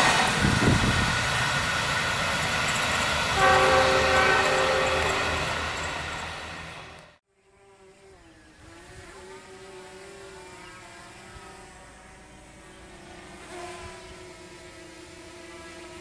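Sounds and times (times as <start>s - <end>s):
diesel locomotive engine hum: 0.0s - 7.2s.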